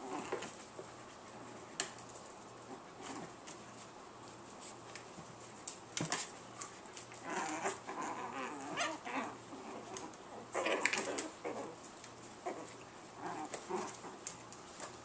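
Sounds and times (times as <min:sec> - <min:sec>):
puppies yipping and whining: 0:07.2 - 0:09.8.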